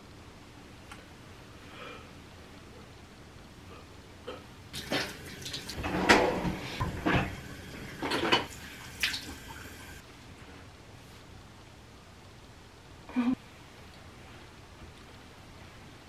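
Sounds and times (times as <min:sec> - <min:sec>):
water splashing: 0:07.0 - 0:10.0.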